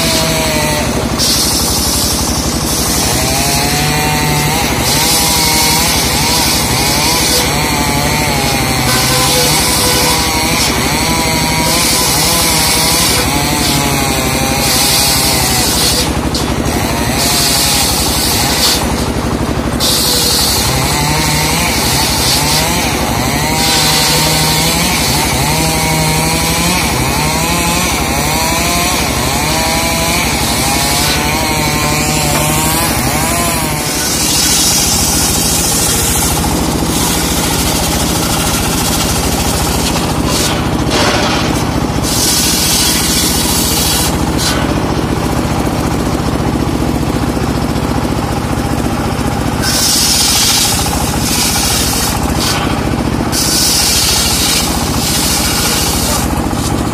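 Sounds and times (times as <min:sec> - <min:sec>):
saw blade hissing through wood: 0:00.0 - 0:44.7, 0:49.6 - 0:56.9
circular saw motor running: 0:00.0 - 0:56.9.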